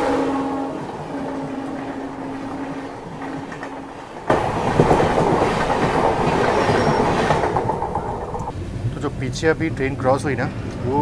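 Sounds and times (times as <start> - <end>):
train horn: 0.0 - 4.6
train wheels rumbling and clattering: 0.0 - 11.0.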